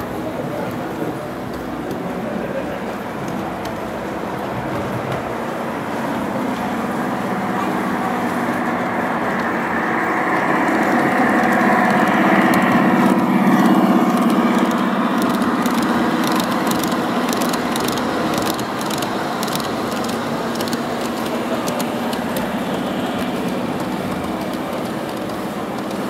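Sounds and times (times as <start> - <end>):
model train running hum: 0.0 - 26.0
train wheels clicking on track: 0.0 - 26.0.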